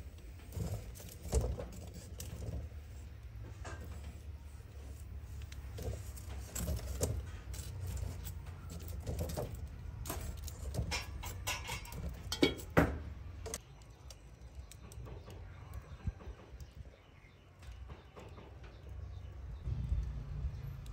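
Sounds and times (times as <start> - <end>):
utensils and dishes clinking: 0.4 - 13.6.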